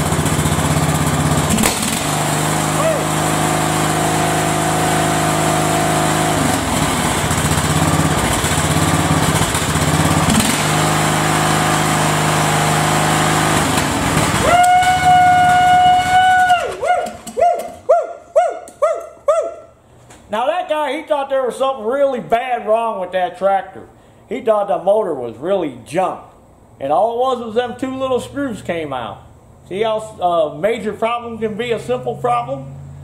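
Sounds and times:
lawn mower engine running: 0:00.0 - 0:17.9.

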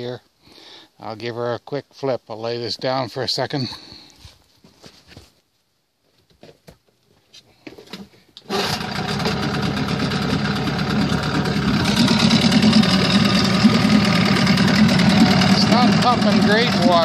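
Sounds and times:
outboard engine starting and running: 0:08.4 - 0:17.0.

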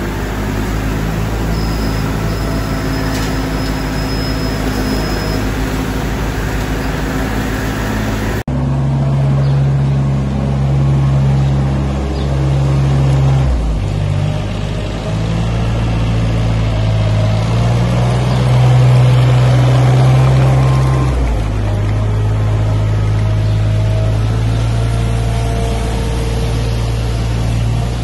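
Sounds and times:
straw blower fan rushing: 0:00.0 - 0:08.4
loader engine running: 0:00.0 - 0:28.0
tractor engine hum: 0:00.0 - 0:28.0.

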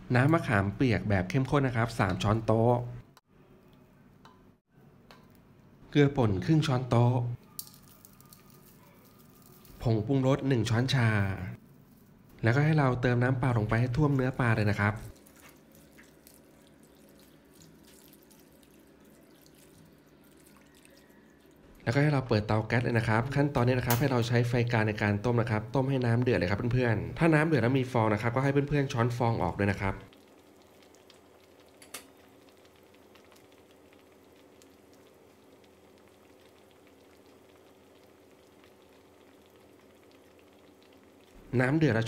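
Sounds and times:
water trickling into metal pot: 0:14.0 - 0:21.7, 0:30.1 - 0:42.0.

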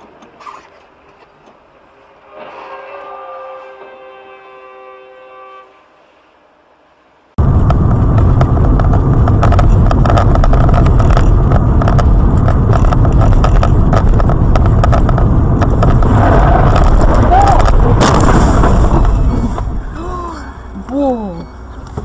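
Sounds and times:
road and engine rumble: 0:00.0 - 0:02.7, 0:05.8 - 0:22.0
sharp clicks and rattles: 0:07.4 - 0:19.7.

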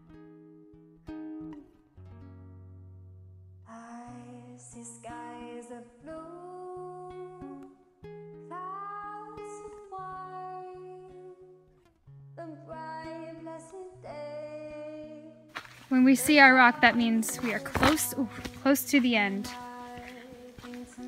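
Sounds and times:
plucked guitar: 0:00.0 - 0:21.0
person singing: 0:08.5 - 0:11.6, 0:16.0 - 0:21.0.

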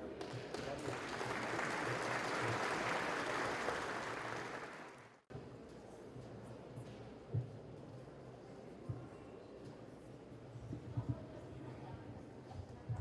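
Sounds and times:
audience applauding: 0:00.2 - 0:05.2.

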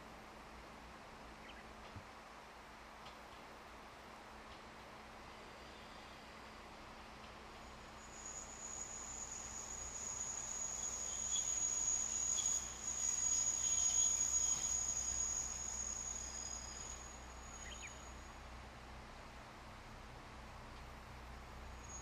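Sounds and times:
insect shrill buzzing: 0:08.2 - 0:17.9.

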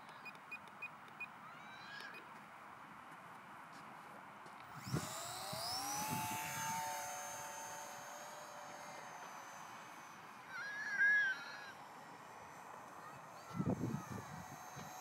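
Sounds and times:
model plane motor whine: 0:04.6 - 0:15.0
wavering call: 0:10.5 - 0:11.8.

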